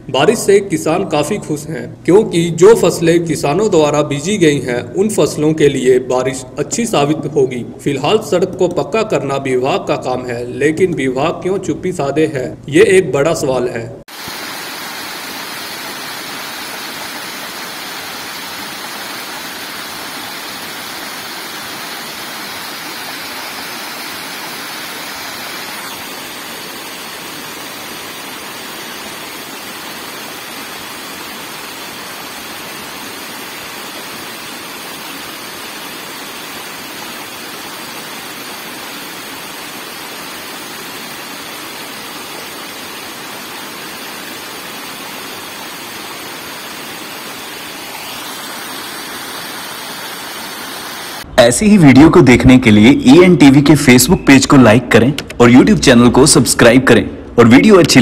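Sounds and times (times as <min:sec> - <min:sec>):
water rushing from waterfall: 0:14.1 - 0:51.3.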